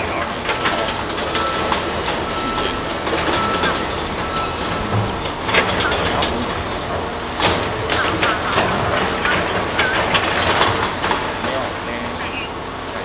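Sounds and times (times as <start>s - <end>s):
high metallic squeals: 0.0s - 7.0s
heavy machinery rumbling: 0.0s - 13.0s.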